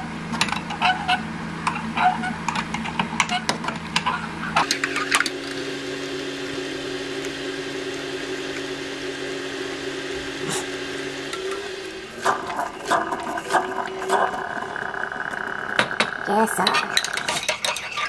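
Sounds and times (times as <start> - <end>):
kitchen appliance humming: 0.0 - 18.0
kitchenware clinking: 15.8 - 18.0.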